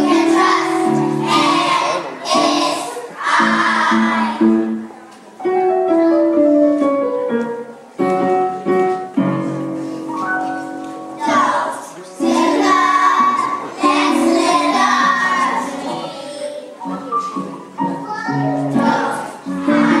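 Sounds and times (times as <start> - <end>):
children's choir singing: 0.0 - 4.8, 11.1 - 17.2, 17.8 - 20.0
piano accompaniment: 0.0 - 20.0.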